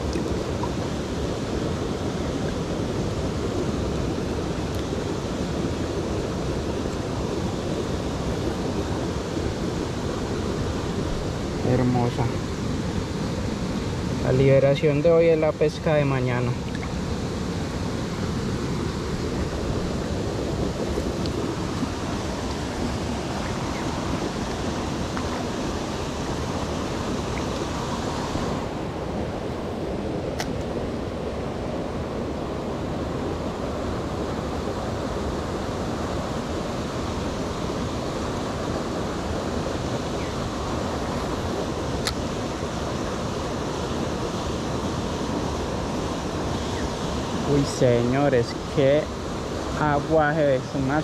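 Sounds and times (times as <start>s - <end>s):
stream water flowing: 0.0s - 51.0s.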